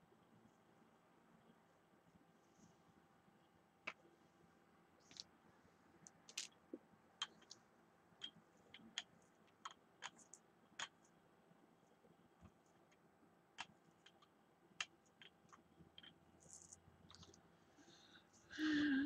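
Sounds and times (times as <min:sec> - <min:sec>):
craft tools clicking and tapping: 0:07.2 - 0:07.6.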